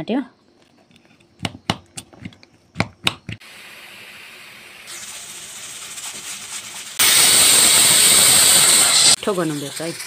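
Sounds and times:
steam hissing from cooking rice: 3.4s - 10.0s.

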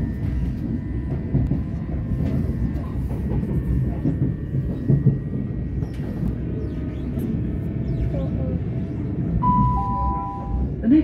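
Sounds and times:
train wheels rumbling on rail: 0.0s - 11.0s
rail clicks and knocks: 0.2s - 6.6s
faint high tone: 9.4s - 10.6s.

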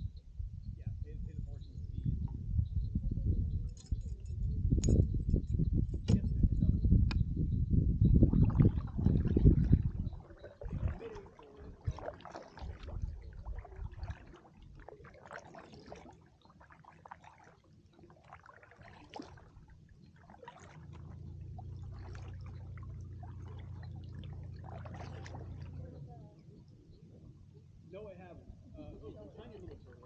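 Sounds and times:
water dripping and trickling: 8.2s - 26.0s
paddle blades dipping into water: 8.3s - 26.0s
steady low hum: 20.7s - 30.0s.

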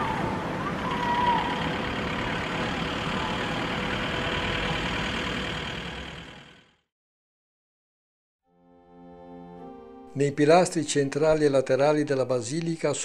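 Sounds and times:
street traffic rumble: 0.0s - 6.8s.

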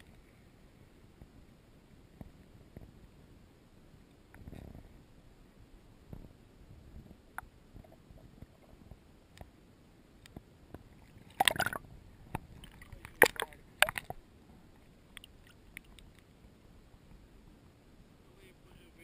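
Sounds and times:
water sloshing and gurgling: 10.7s - 16.4s
loud water splashes: 11.2s - 11.8s, 12.6s - 14.1s
faint clicks: 15.1s - 16.3s.

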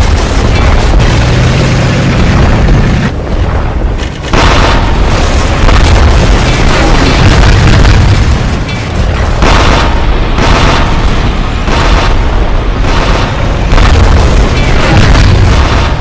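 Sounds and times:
continuous deep rumble: 0.0s - 16.0s
explosion booms: 4.3s - 16.0s.

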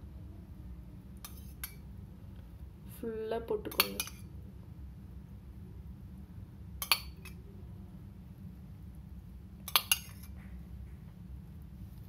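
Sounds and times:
low steady hum: 0.0s - 12.0s
steel spoon clinking on metal pan: 3.7s - 4.3s, 9.7s - 10.3s.

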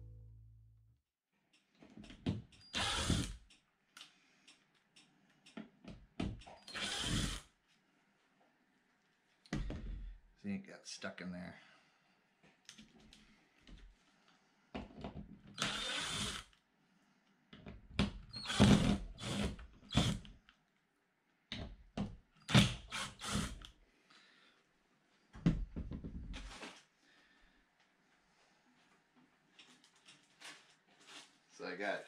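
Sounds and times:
cordless driver running screws: 2.7s - 3.4s, 6.7s - 7.5s, 15.6s - 16.5s, 18.4s - 20.2s, 22.5s - 23.7s.

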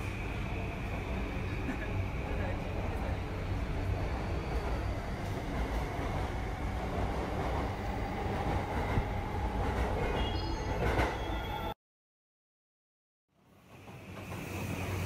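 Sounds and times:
electric train running on track: 0.0s - 11.5s, 13.4s - 15.0s.

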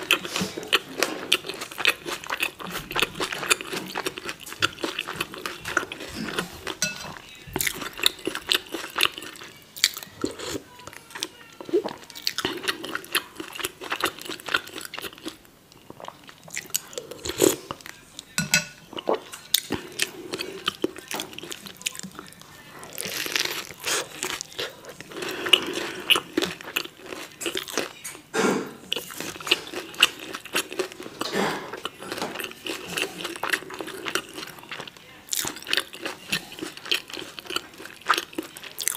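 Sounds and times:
chewing with wet mouth clicks: 28.9s - 38.9s.

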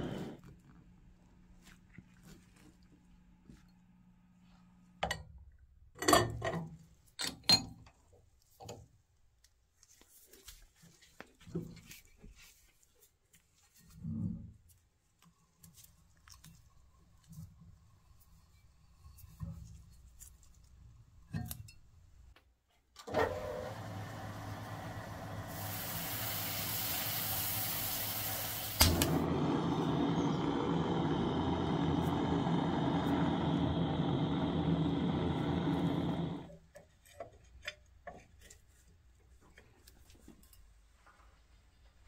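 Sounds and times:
gas torch hissing: 0.0s - 0.4s, 23.6s - 36.5s
torch ignition click: 27.5s - 36.5s.

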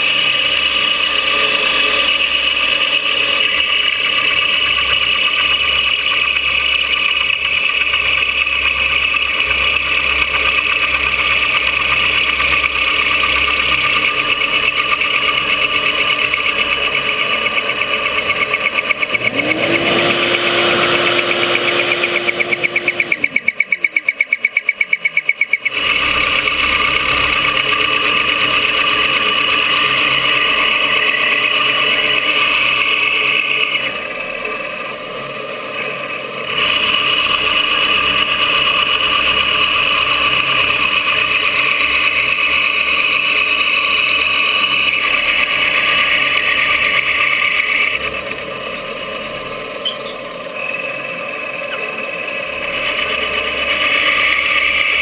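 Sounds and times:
milling machine cutting: 0.0s - 55.0s.

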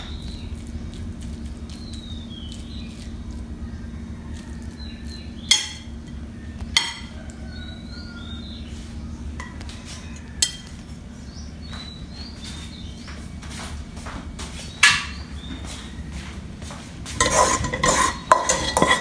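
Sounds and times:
metal spoon clinking on plates: 5.5s - 7.3s, 9.4s - 11.0s, 14.8s - 15.2s, 17.2s - 19.0s.

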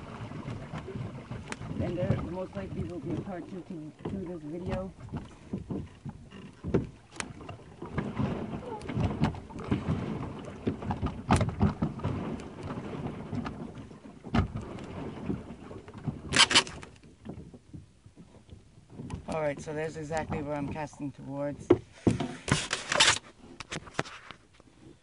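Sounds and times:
paddle strokes: 0.0s - 25.0s
water sloshing: 0.0s - 25.0s
sharp knocks on kayak: 4.6s - 7.3s, 7.9s - 13.6s, 14.3s - 15.4s.

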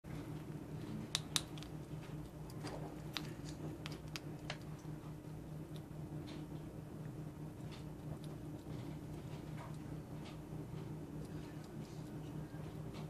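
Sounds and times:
steady low hum: 0.1s - 13.0s
squirrel biting and chewing clicks: 1.1s - 4.9s.

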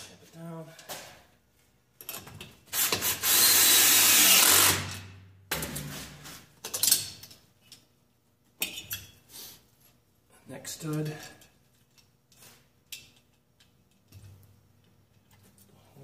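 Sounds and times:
power tool running: 2.8s - 4.9s.

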